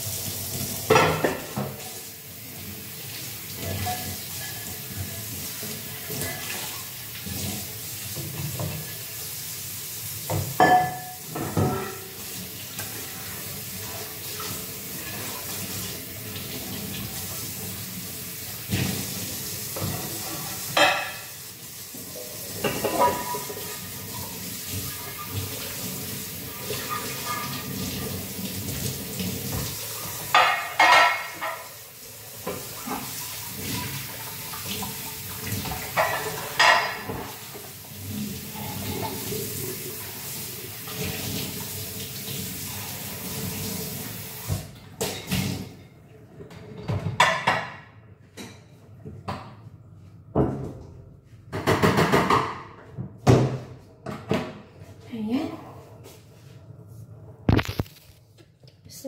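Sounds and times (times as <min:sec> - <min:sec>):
kitchen tap running into sink: 0:00.0 - 0:45.8, 0:51.6 - 0:52.6
dishes and pots clattering: 0:00.8 - 0:01.8, 0:10.3 - 0:12.2, 0:19.7 - 0:21.4, 0:22.1 - 0:25.6, 0:26.6 - 0:28.0, 0:29.5 - 0:31.8, 0:32.4 - 0:37.6, 0:38.5 - 0:39.5, 0:44.8 - 0:49.6, 0:51.5 - 0:54.6.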